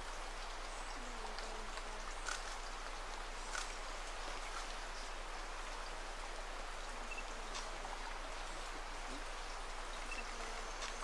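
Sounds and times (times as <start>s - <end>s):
watery hiss of forest ambience: 0.0s - 11.0s
faint ticks: 1.3s - 3.8s, 7.1s - 7.8s, 10.1s - 11.0s.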